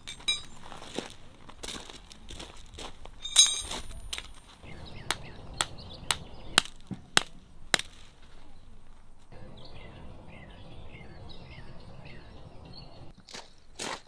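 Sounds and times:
hammer striking stakes into gravel: 5.1 - 8.1.

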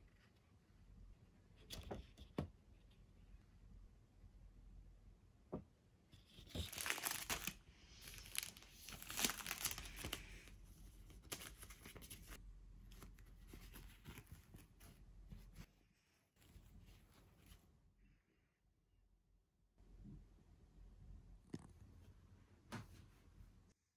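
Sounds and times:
wrapping crinkling and tearing: 6.4 - 10.5.

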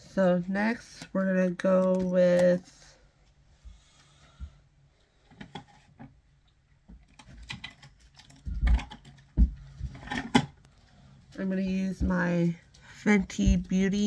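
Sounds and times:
heavier thumps: 11.8 - 12.4, 13.1 - 14.0.

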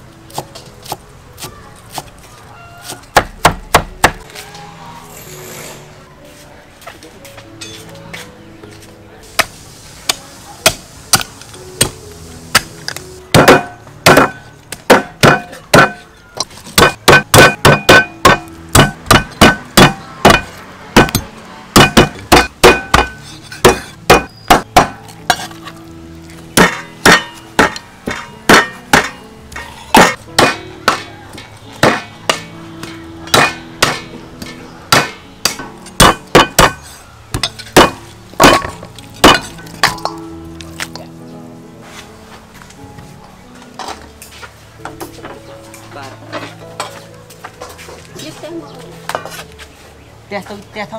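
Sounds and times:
cleaver chopping meat and bone: 2.8 - 4.2, 10.1 - 12.0, 13.3 - 25.5, 26.6 - 40.1.

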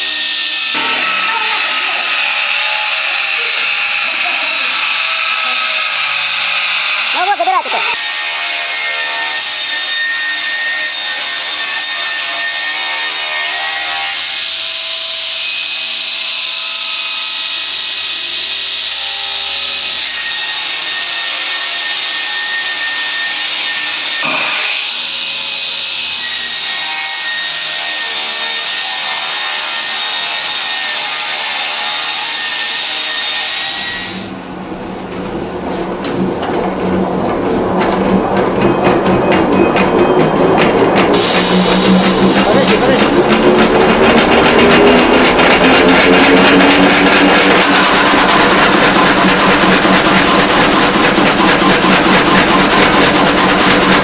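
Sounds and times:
circular saw cutting log: 0.0 - 17.7, 26.2 - 34.4, 37.6 - 54.0.

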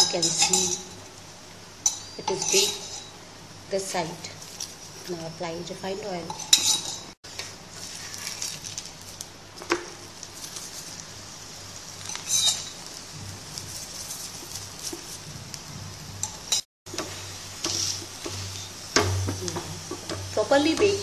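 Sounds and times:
steel spoon clinking on griddle: 0.0 - 1.0, 1.8 - 3.2, 6.2 - 7.2, 12.0 - 12.9
faint sizzling hiss: 0.0 - 21.0.

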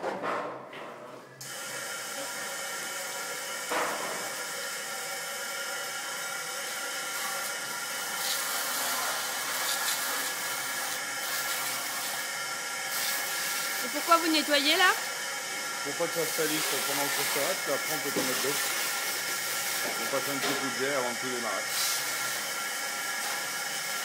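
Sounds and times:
hose spraying water on metal: 1.4 - 24.0.

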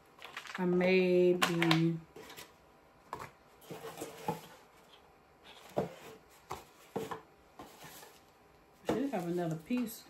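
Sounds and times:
plastic pieces clicking and knocking: 0.2 - 0.7, 1.3 - 2.0.

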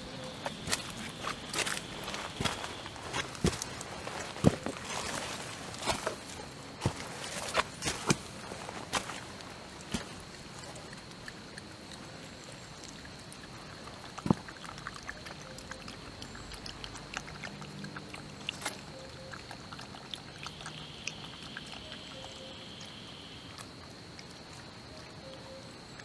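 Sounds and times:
rustling in leaf litter: 0.0 - 10.2
high insect whine: 0.0 - 14.6, 17.7 - 26.0.

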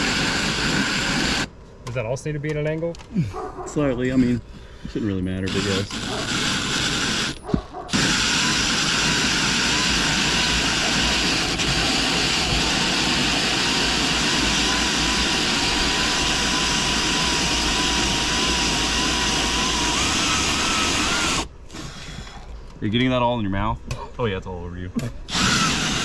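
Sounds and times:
drill motor whine: 0.0 - 1.5, 5.4 - 22.3, 25.3 - 26.0
hole saw grinding through siding: 0.0 - 1.5, 5.5 - 22.2, 25.3 - 26.0.

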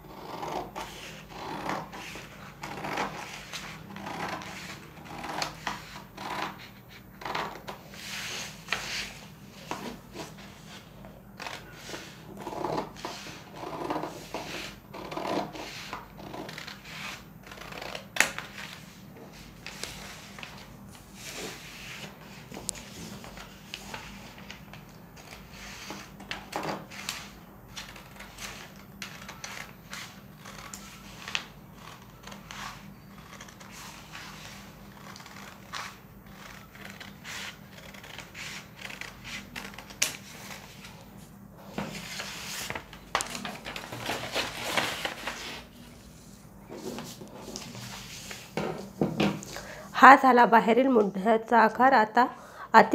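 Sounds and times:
scissors cutting paper: 27.0 - 40.2
paper rustling: 41.7 - 46.1.

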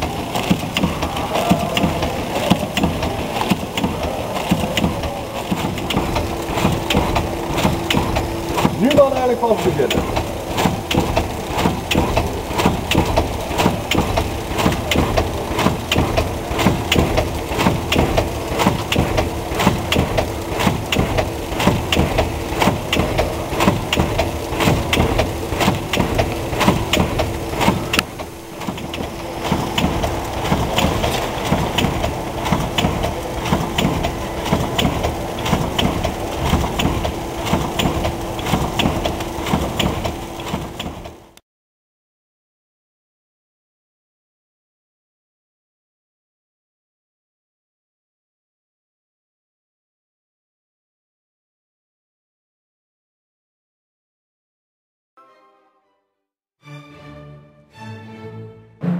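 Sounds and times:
machine hum: 0.0 - 41.4
packaging machine clattering: 0.0 - 41.4.

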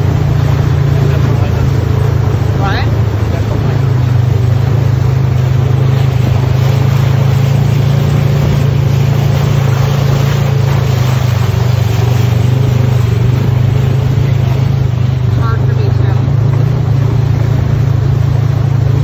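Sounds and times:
engine low drone: 0.0 - 19.0.

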